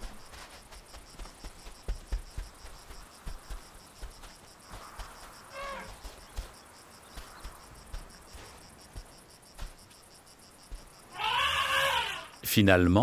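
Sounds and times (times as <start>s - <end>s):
insects chirping: 0.0s - 13.0s
elephant calf calling: 5.5s - 6.0s, 11.1s - 12.4s.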